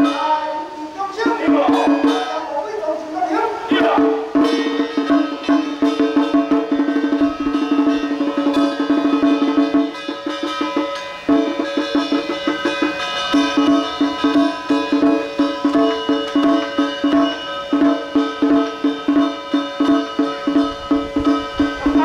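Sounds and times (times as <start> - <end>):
fast clacking percussion: 0.0 - 22.0
steady held note: 0.0 - 22.0.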